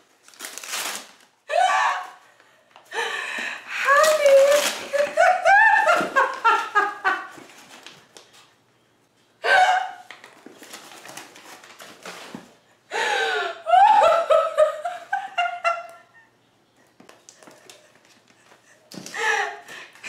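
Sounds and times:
woman laughing hard: 3.0 - 7.4, 13.0 - 16.3.

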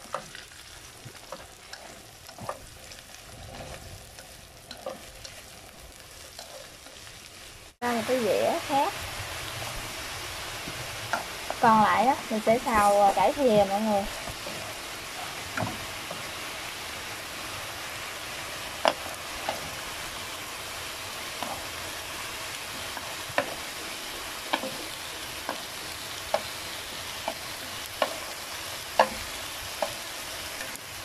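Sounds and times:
vegetables sizzling in a wok: 0.0 - 31.0
chopsticks tapping a wok: 4.2 - 5.5, 6.3 - 7.0, 11.1 - 16.4, 18.8 - 19.9, 22.7 - 30.8.

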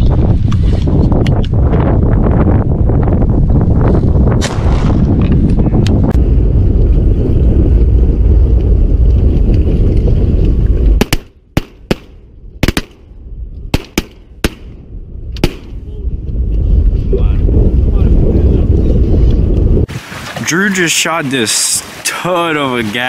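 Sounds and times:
wind buffeting microphone: 0.0 - 23.0
shotgun shots: 4.4 - 5.0, 11.0 - 13.0, 13.7 - 14.8, 15.4 - 15.7.

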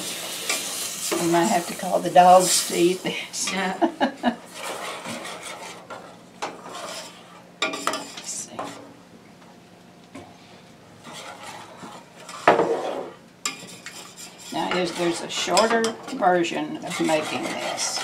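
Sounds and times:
spoon scraping a saucepan: 4.5 - 8.8, 11.0 - 18.0.

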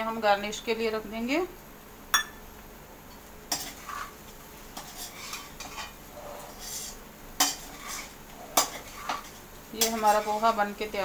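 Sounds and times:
spatula scraping metal pan: 3.5 - 10.6.

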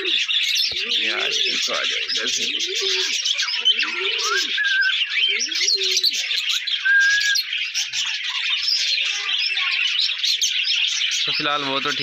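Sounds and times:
pigeon cooing: 0.0 - 7.4
budgerigars chirping and chattering: 0.0 - 12.0.

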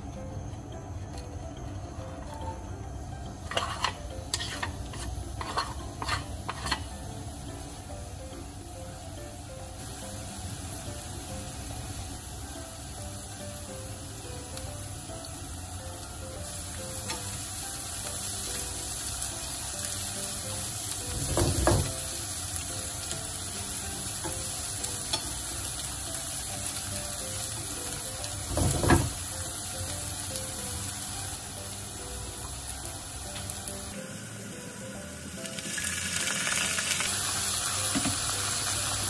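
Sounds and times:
food sizzling in oil: 2.2 - 39.0
chopsticks stirring food in pan: 3.4 - 7.0.

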